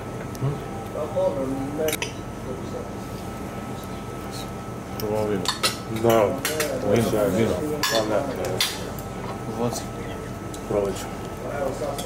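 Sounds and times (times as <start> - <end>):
people talking: 3.7 - 12.0
cutlery clinking on a plate: 7.8 - 8.8.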